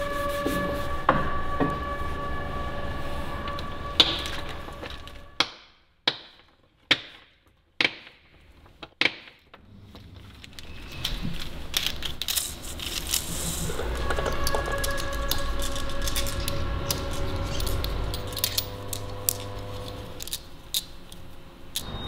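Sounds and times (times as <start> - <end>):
workshop machinery hum: 0.0 - 5.5, 9.6 - 22.0
metal parts clicking on workbench: 9.9 - 21.9.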